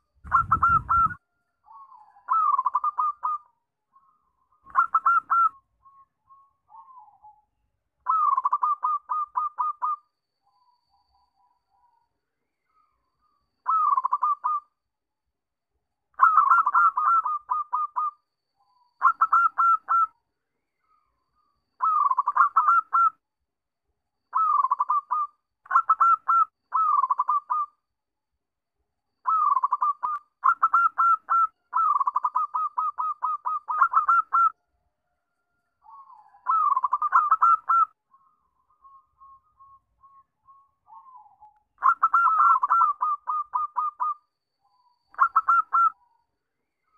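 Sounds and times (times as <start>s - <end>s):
dove cooing: 0.0s - 3.5s, 4.7s - 5.6s, 8.0s - 10.0s, 13.6s - 14.6s, 16.2s - 18.1s, 21.8s - 23.2s, 24.3s - 27.7s, 29.2s - 34.5s, 35.8s - 38.0s, 40.9s - 44.2s, 45.2s - 46.0s.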